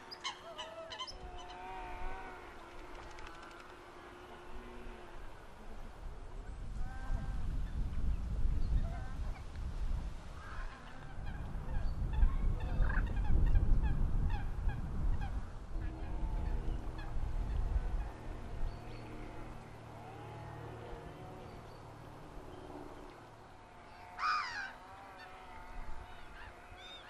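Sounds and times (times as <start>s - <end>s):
geese honking: 23.7s - 27.0s.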